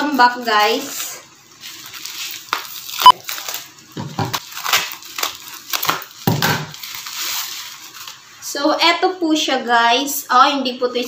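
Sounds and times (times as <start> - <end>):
plastic crinkling: 0.0 - 8.3.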